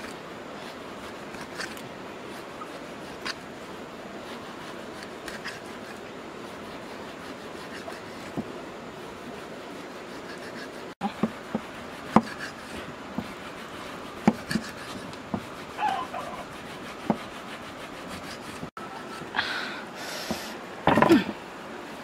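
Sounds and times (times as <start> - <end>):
knife scraping fish scales: 0.0 - 8.4, 9.8 - 18.7
steady hiss: 0.0 - 22.0.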